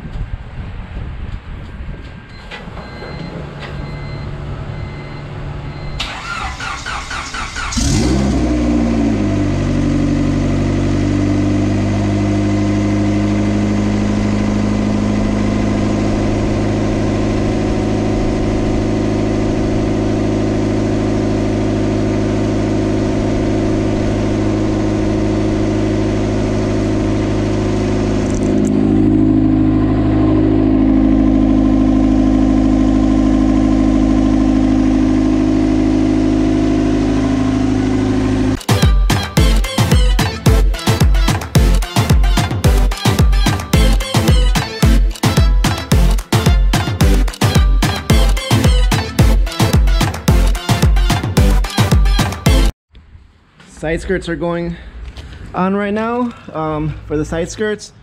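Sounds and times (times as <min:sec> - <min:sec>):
car engine idling: 0:04.4 - 0:39.6
engine cranking on starter: 0:05.9 - 0:08.8.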